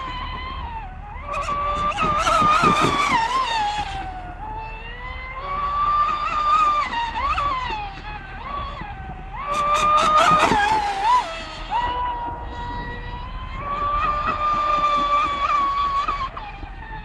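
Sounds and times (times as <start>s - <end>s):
model boat motor whining: 0.0s - 17.0s
rough water rushing: 5.3s - 17.0s.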